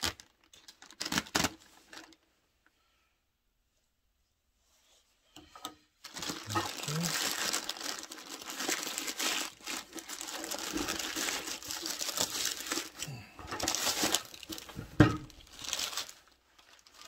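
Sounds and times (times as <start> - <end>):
plastic bag crinkling and tearing: 0.0 - 2.2, 6.0 - 17.0
loud thump: 14.8 - 15.3.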